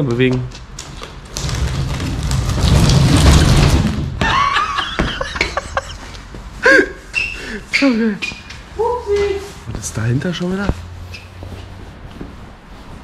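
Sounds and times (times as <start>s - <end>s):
wooden wall scraping: 0.8s - 5.9s
man laughing: 4.2s - 7.1s.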